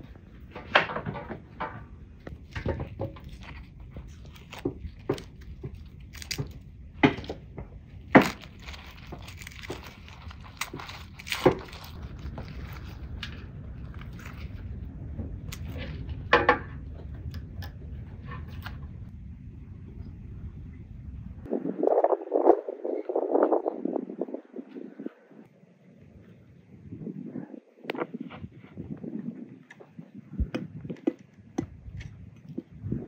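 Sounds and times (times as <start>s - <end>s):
low steady rumble: 0.0s - 33.0s
onion skins crinkling: 2.4s - 14.8s.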